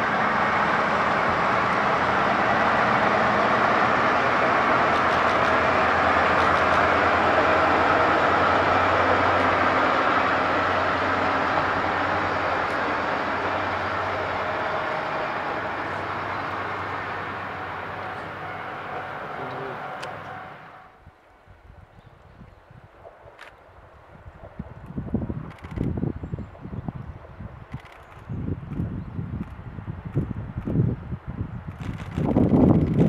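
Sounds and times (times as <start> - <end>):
diesel train passing: 0.0 - 21.1, 22.7 - 33.0
wind noise on microphone: 21.0 - 33.0.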